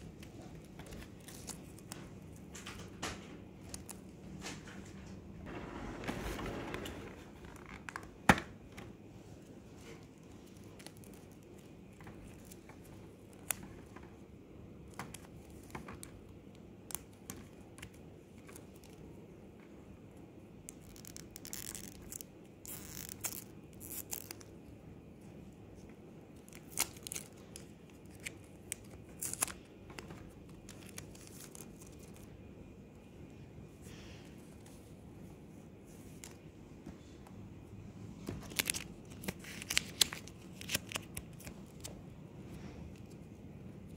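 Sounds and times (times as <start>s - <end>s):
plastic packaging crinkling: 26.4s - 32.3s, 38.3s - 42.0s.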